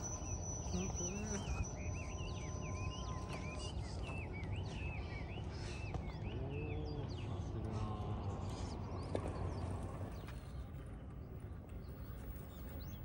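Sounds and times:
low outdoor rumble: 0:00.0 - 0:13.0
small birds chirping: 0:00.0 - 0:13.0.

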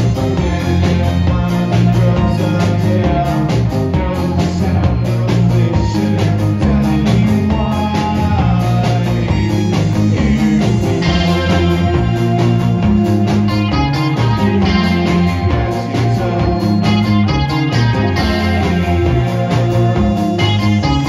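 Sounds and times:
bass line: 0:00.0 - 0:21.0
drum kit beat: 0:00.0 - 0:21.0
electric guitars: 0:00.0 - 0:21.0.

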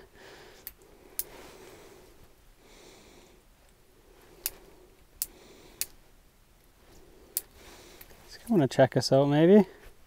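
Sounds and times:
man breathing out through nose: 0:00.0 - 0:03.5, 0:04.5 - 0:05.9, 0:07.0 - 0:08.2.

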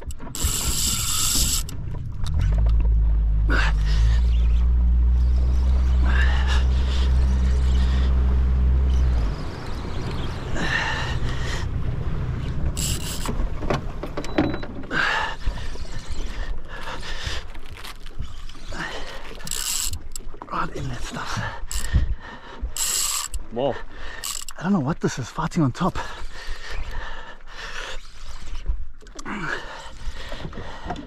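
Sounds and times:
electric trolling motor humming: 0:00.0 - 0:14.7.

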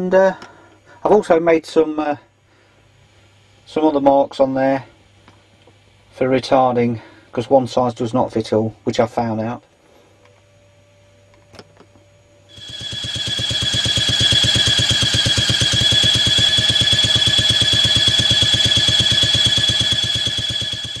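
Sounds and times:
high engine whine: 0:12.5 - 0:21.0
small two-stroke engine running: 0:12.5 - 0:21.0.

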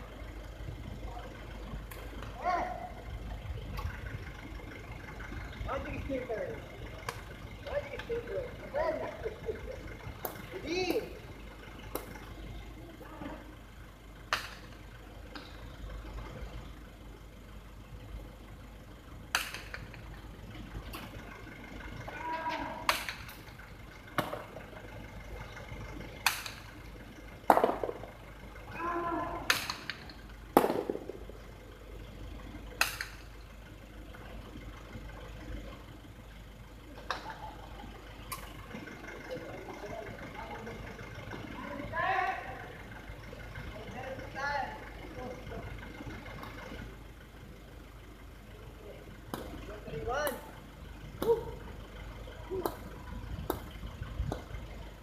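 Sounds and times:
voices calling out: 0:00.0 - 0:55.0
hard ball cracking against wall: 0:27.5 - 0:28.1, 0:29.5 - 0:30.0, 0:30.6 - 0:31.2.

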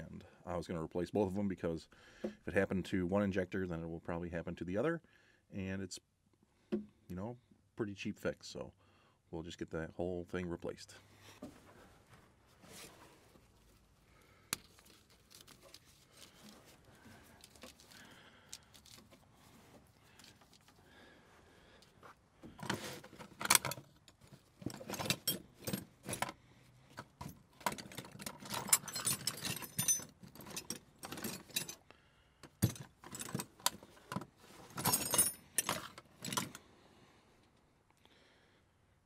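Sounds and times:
small metal tools clinking: 0:22.6 - 0:26.3, 0:27.0 - 0:31.8, 0:32.4 - 0:36.6.

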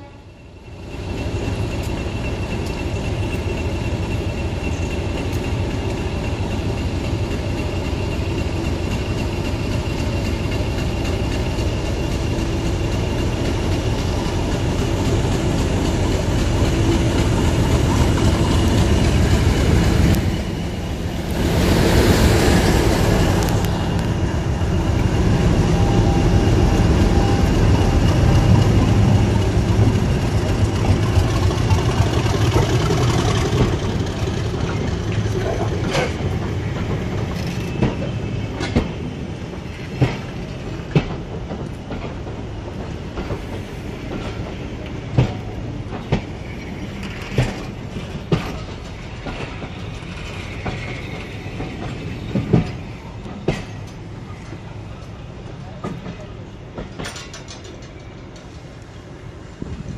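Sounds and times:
diesel locomotive engine: 0:00.0 - 0:59.9
carriage wheels clacking on rail joints: 0:28.2 - 0:58.8.

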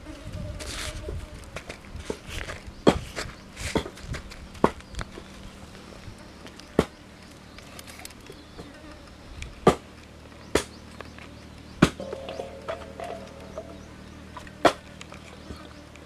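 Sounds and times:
faint steady hum: 0:00.0 - 0:16.0
sharp knocks: 0:11.8 - 0:14.0.

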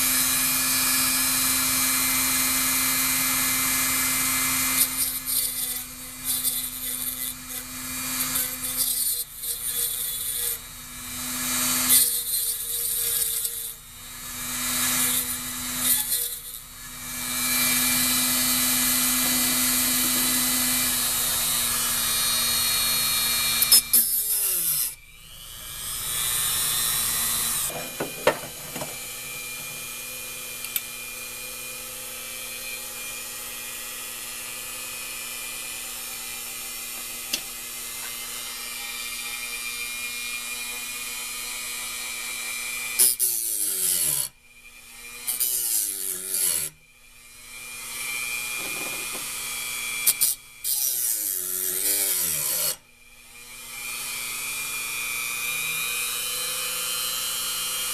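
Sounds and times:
rotary tool motor: 0:00.0 - 0:57.9
gritty grinding on steel: 0:26.3 - 0:31.7.

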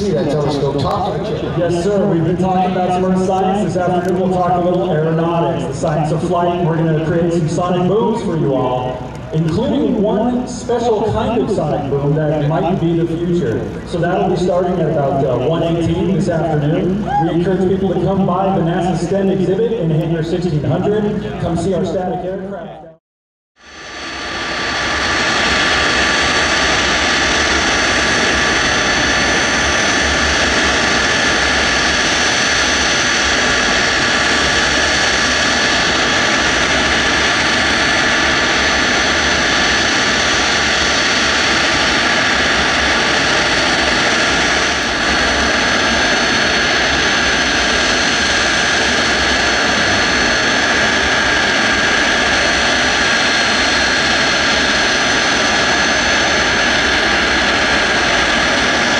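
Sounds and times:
jet engines whining: 0:00.0 - 0:23.0, 0:23.6 - 0:58.9.

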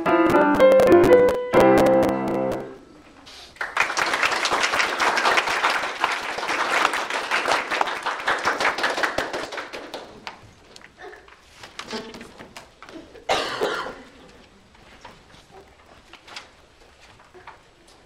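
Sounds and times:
piano chord: 0:00.0 - 0:02.8
audience applauding: 0:03.5 - 0:10.4.

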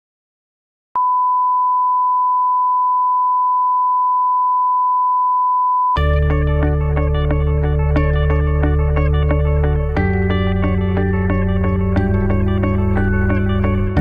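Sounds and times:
music: 0:06.0 - 0:14.0.

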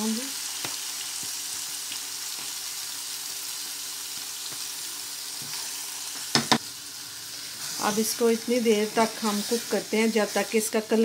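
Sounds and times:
chicken sizzling in hot oil: 0:00.0 - 0:11.0
sharp knock: 0:06.3 - 0:06.6.

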